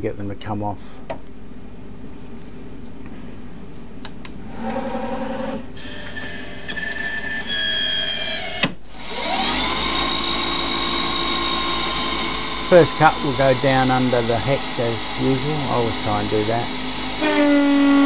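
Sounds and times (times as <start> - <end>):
lathe spindle whine: 4.5 - 18.0
machine whirs: 4.5 - 18.0.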